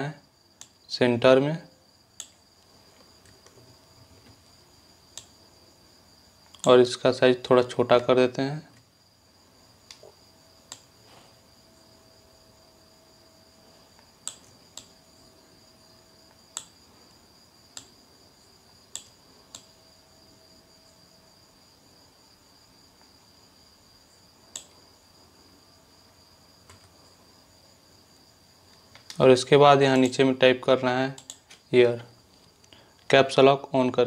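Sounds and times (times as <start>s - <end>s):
faint high-pitched whine: 0.0s - 34.0s
computer mouse clicking: 0.6s - 0.8s, 2.2s - 2.4s, 5.1s - 5.3s, 6.4s - 6.7s, 10.7s - 10.9s, 13.9s - 15.0s, 16.3s - 16.8s, 17.7s - 18.0s, 18.9s - 19.8s, 24.5s - 24.8s, 26.6s - 27.0s, 28.7s - 29.2s, 31.1s - 31.6s.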